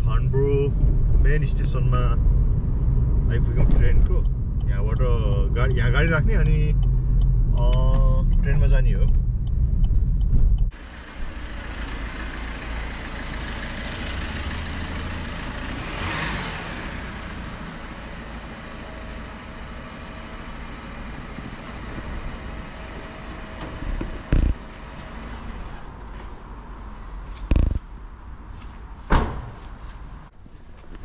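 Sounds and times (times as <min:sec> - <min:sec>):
loud low rumble: 0:00.0 - 0:10.7
road traffic noise: 0:00.0 - 0:31.0.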